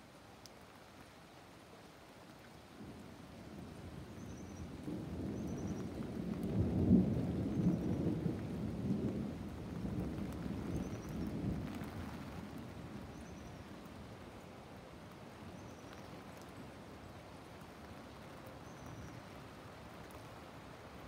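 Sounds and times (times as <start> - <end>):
rolling thunder: 4.1 - 12.6.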